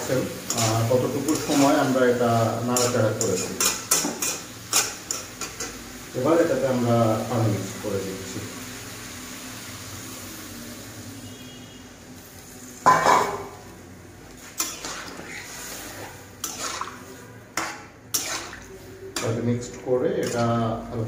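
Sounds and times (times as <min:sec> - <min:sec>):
water pouring and splashing: 0:00.0 - 0:02.2, 0:14.4 - 0:17.4, 0:18.2 - 0:18.8
metal spatula scraping pan: 0:00.4 - 0:05.7, 0:14.4 - 0:20.6.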